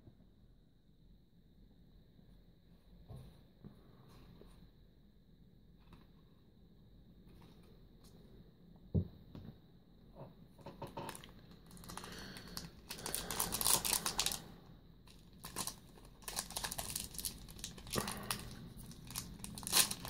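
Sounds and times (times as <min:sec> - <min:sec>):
foil pack crinkling and tearing: 0:11.1 - 0:14.4, 0:15.1 - 0:20.0.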